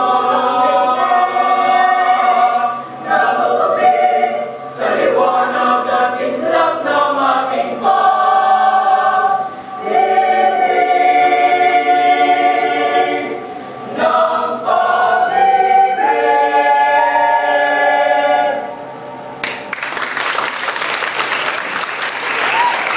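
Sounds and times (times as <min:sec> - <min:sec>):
choir singing a cappella: 0:00.0 - 0:19.1
applause: 0:19.4 - 0:22.9.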